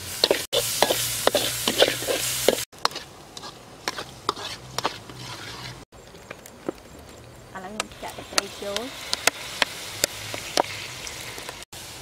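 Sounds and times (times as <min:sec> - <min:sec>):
metal spatula scraping wok: 0:00.0 - 0:05.9
paste sizzling in oil: 0:00.0 - 0:05.9, 0:07.8 - 0:12.0.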